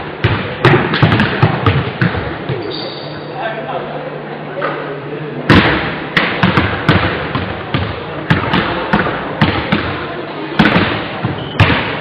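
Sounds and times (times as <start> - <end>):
basketball bouncing on wooden floor: 0.2 - 2.6, 6.3 - 9.9, 10.6 - 11.9.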